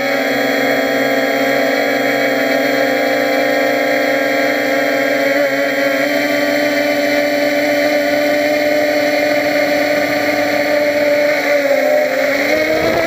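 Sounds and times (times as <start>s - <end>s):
quadcopter motors humming: 0.0s - 13.0s.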